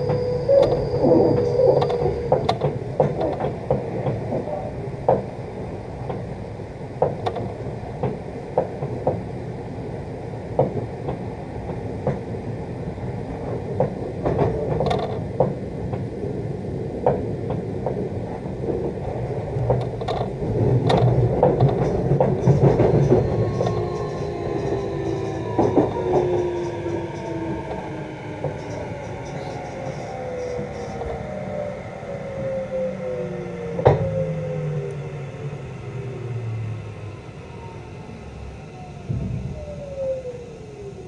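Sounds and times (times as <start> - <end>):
train running rumble: 0.0 - 41.0
train traction motors whining: 0.0 - 41.0.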